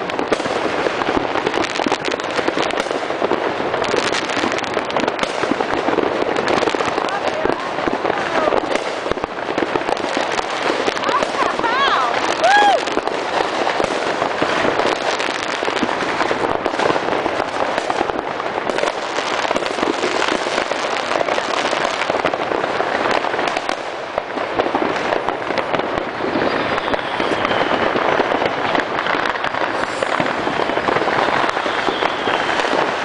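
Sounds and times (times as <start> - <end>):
fireworks crackling and popping: 0.0 - 33.0
falling firework whistle: 10.8 - 14.2, 25.7 - 33.0.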